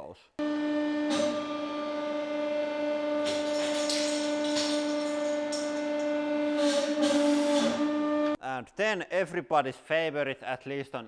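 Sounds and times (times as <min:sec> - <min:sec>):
hydraulic pump droning: 0:00.4 - 0:08.4.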